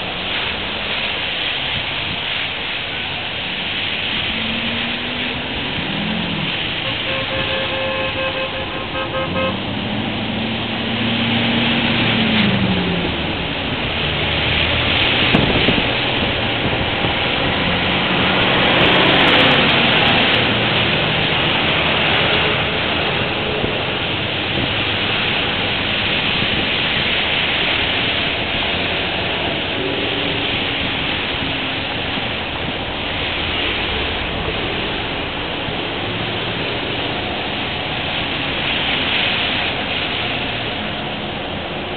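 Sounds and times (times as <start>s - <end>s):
vehicles passing on wet road: 0.0s - 41.9s
car horn: 6.8s - 9.7s.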